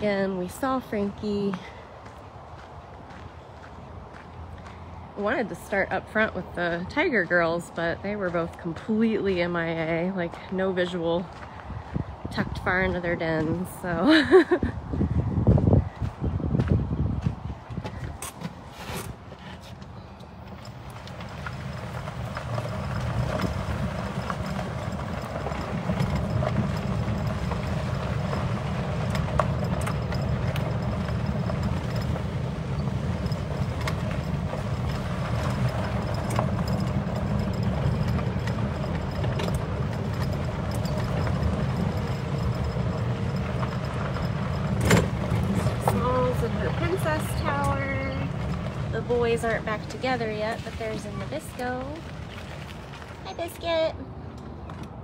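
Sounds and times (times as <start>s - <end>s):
utility cart rumbling: 0.0s - 55.0s
clicks and knocks over rough ground: 20.5s - 53.8s.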